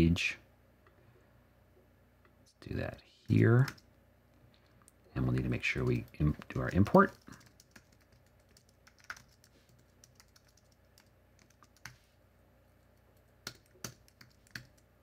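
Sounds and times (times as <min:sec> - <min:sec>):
faint typing on keyboard: 0:03.3 - 0:03.9, 0:04.6 - 0:12.1, 0:12.7 - 0:15.0.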